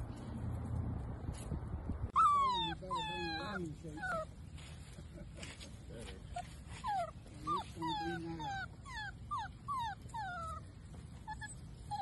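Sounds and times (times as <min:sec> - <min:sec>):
puppy whimpering: 0:02.2 - 0:04.4, 0:06.3 - 0:12.0.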